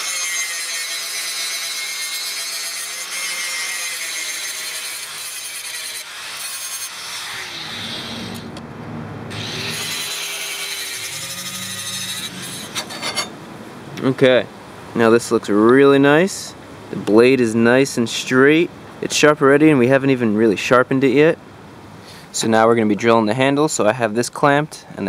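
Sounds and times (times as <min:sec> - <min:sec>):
angle grinder grinding steel: 0:00.0 - 0:08.5, 0:09.3 - 0:13.4.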